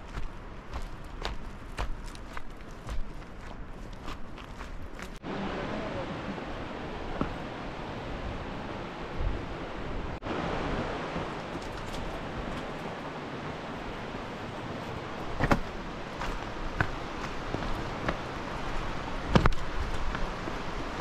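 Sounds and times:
river flowing over rocks: 5.2 - 21.0.

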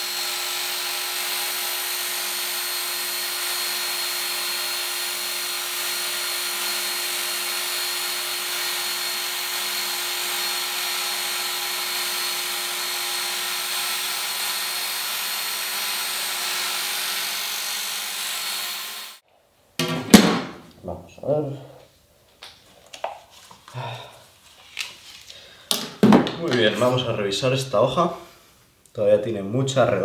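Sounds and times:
belt sharpener grinding blade: 0.0 - 19.2.

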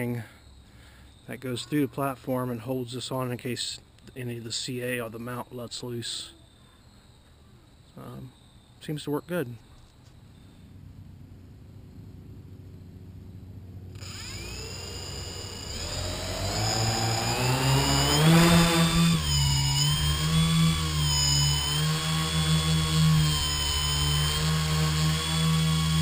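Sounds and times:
drone motors whining: 13.9 - 26.0.

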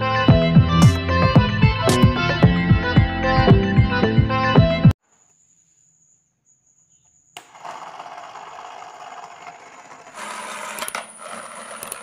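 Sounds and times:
toy motor whirring: 7.5 - 12.0.

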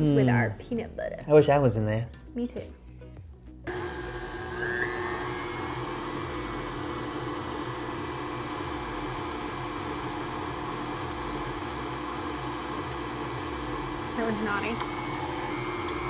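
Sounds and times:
stand mixer motor whirring: 3.7 - 16.0.

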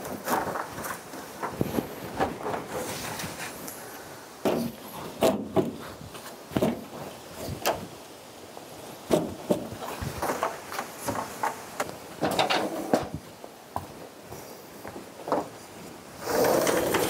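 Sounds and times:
knocks and clunks: 4.4 - 5.8, 6.5 - 7.8, 9.1 - 13.2.

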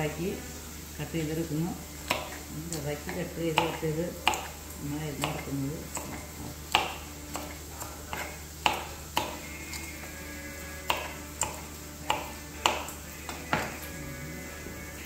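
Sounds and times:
knife chopping on wooden board: 2.0 - 9.9, 10.8 - 13.8.

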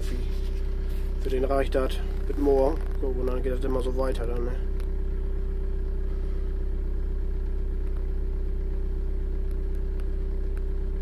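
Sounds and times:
engine idling drone: 0.0 - 11.0
steady hum: 0.0 - 11.0
faint ticks: 9.4 - 10.7.

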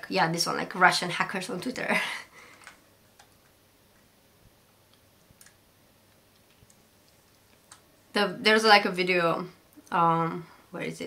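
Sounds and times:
computer mouse clicks: 2.5 - 4.1, 4.9 - 7.9.

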